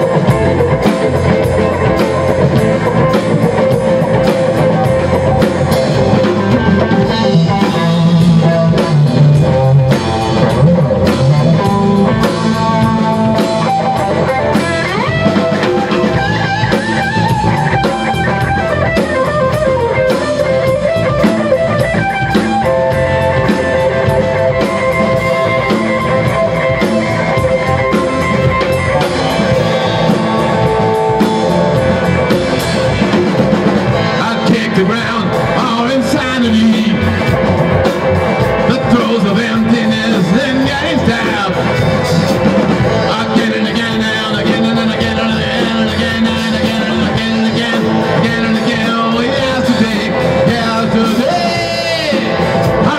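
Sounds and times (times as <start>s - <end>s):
drum kit: 0.0s - 52.9s
electric guitars: 0.0s - 52.9s
keyboard: 0.0s - 52.9s.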